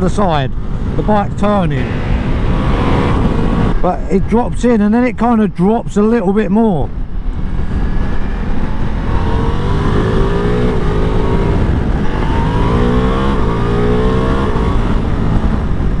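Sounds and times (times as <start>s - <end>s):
motorcycle engine accelerating hard: 1.7s - 3.9s, 7.2s - 16.0s.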